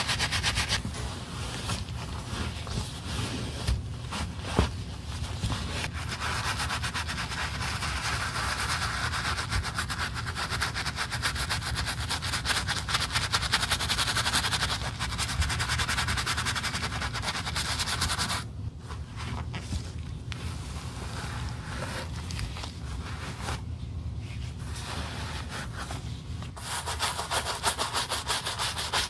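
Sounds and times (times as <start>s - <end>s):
cloth wiping: 0.0s - 29.0s
brush scrubbing leather shoe: 5.8s - 18.4s, 26.6s - 29.0s.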